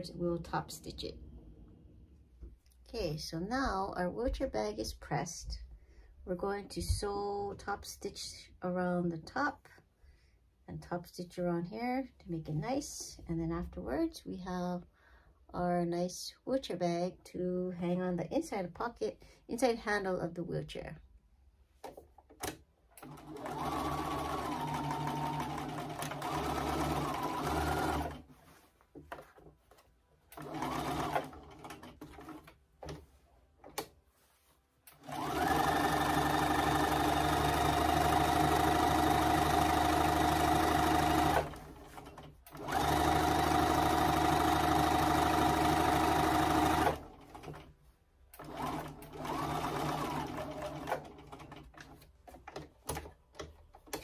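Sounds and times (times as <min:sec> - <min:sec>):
sewing machine stitching: 0:22.3 - 0:28.3, 0:30.3 - 0:33.0, 0:34.9 - 0:47.7, 0:48.4 - 0:54.0.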